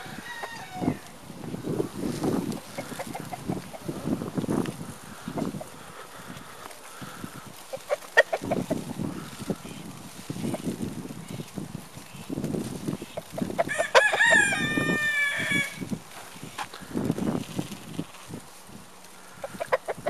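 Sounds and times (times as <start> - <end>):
rooster crowing: 0.0 - 1.2, 13.6 - 15.9.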